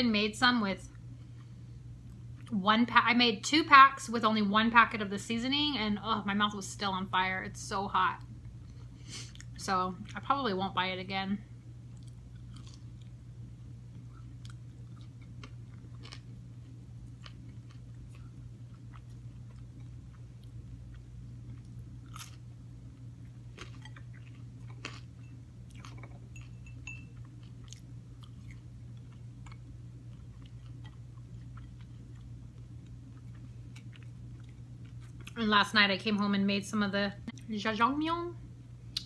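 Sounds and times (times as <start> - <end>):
steady low hum: 0.0 - 39.0
person chewing crunchy food: 11.9 - 35.4.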